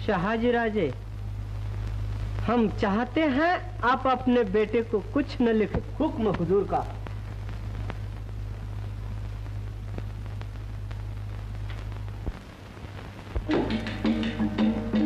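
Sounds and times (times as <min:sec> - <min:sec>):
film soundtrack hum and hiss: 0:00.0 - 0:15.0
faint clicks: 0:09.2 - 0:12.4
music with drums and wood block: 0:13.5 - 0:15.0.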